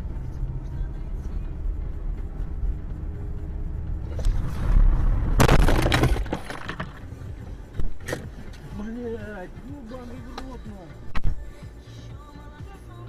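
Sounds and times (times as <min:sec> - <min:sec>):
car engine and road rumble: 0:00.0 - 0:13.0
car crash: 0:04.1 - 0:07.2.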